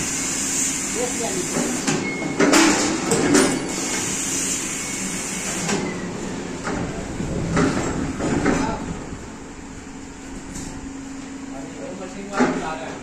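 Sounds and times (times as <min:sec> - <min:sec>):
machine whirring with high hiss: 0:00.0 - 0:06.4
machine knocks and clacks: 0:06.6 - 0:08.8.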